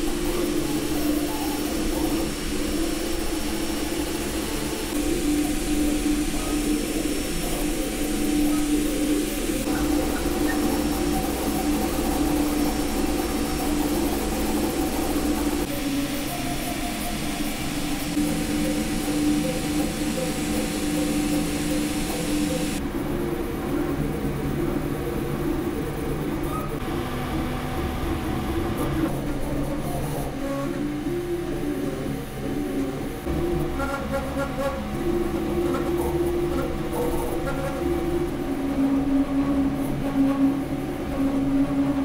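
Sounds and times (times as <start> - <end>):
fan hiss: 0.0 - 23.2
stepper motors whining: 17.1 - 22.8.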